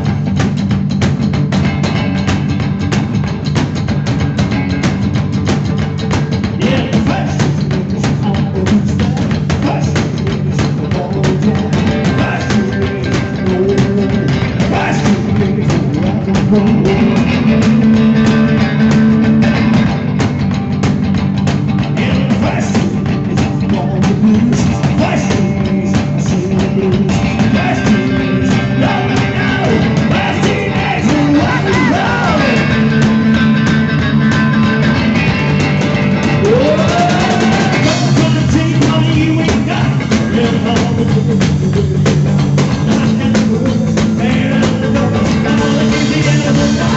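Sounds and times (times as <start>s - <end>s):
drum kit: 0.0s - 46.9s
electric guitar: 0.0s - 46.9s
upright bass: 0.0s - 46.9s
man singing: 6.6s - 19.0s, 21.9s - 33.0s, 36.4s - 46.9s.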